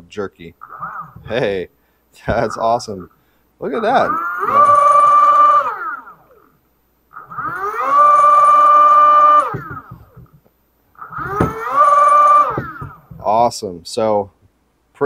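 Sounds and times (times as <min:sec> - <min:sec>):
electric motor whine: 0:00.6 - 0:01.6, 0:03.7 - 0:06.5, 0:07.2 - 0:10.3, 0:11.0 - 0:13.2.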